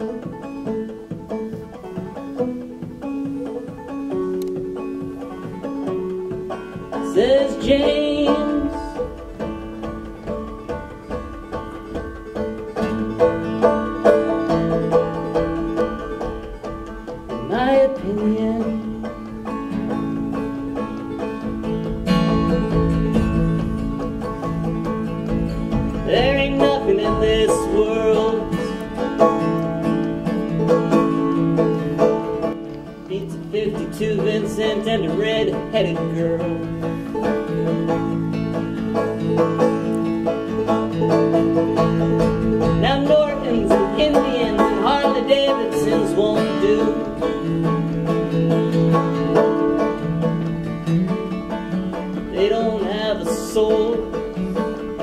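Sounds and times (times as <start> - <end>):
acoustic guitar: 0.0 - 55.0
banjo playing: 0.0 - 55.0
man singing: 7.0 - 9.1, 17.4 - 19.1, 26.0 - 29.0, 33.1 - 36.7, 42.8 - 47.8, 52.3 - 55.0.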